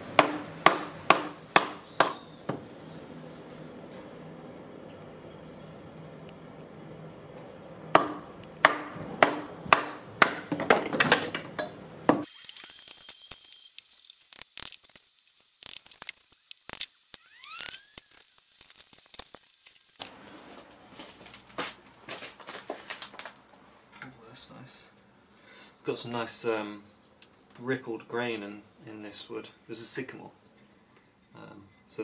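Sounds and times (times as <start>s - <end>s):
short rising-and-falling chirp: 17.1s - 18.4s.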